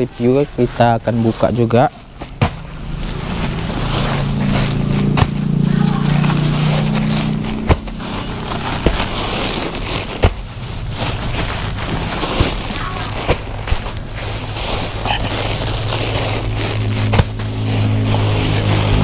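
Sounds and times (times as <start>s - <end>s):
plastic rustling and crinkling: 0.0s - 19.0s
low drone: 14.0s - 19.0s.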